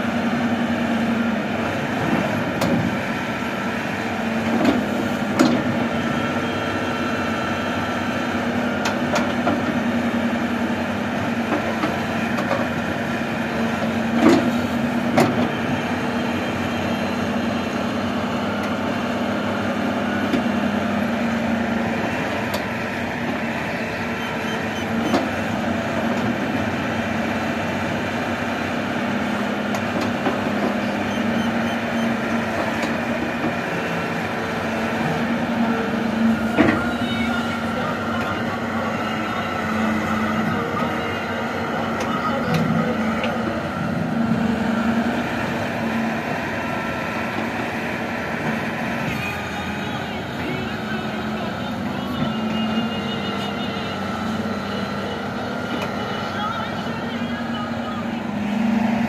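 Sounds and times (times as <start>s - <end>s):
excavator diesel engine running: 0.0s - 59.0s
excavator bucket clunks: 4.6s - 5.8s, 14.2s - 15.6s.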